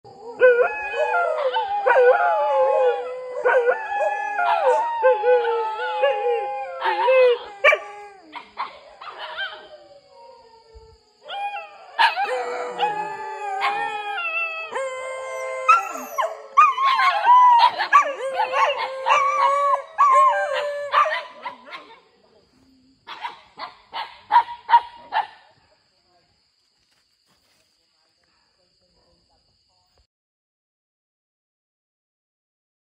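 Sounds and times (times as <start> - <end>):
dogs howling: 0.1 - 21.9
dogs yelping and barking: 0.2 - 10.6, 11.2 - 22.0, 23.1 - 25.3.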